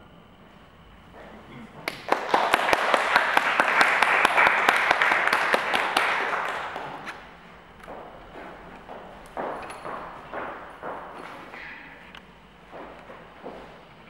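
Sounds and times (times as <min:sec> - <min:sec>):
audience applauding: 0:01.8 - 0:07.3.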